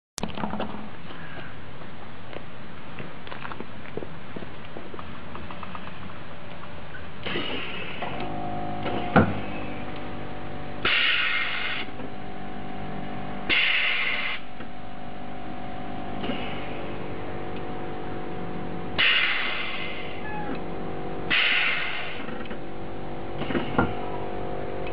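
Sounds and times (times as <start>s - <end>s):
steady hum: 0.3s - 24.9s
air hissing from valves: 7.2s - 9.8s, 10.8s - 12.0s, 13.5s - 14.6s, 16.2s - 17.0s, 19.0s - 20.6s, 21.3s - 22.6s, 23.4s - 24.1s.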